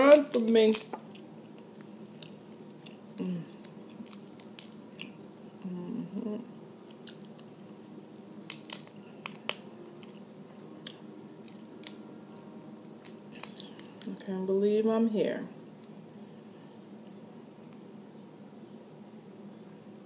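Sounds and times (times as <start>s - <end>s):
crab shell clicking: 0.0s - 1.0s, 8.2s - 10.2s, 10.9s - 14.1s
chewing and lip-smacking: 6.9s - 7.8s.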